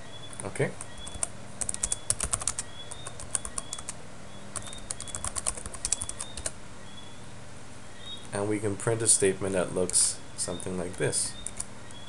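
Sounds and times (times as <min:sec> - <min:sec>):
computer keyboard typing: 0:00.3 - 0:06.6, 0:10.6 - 0:12.0.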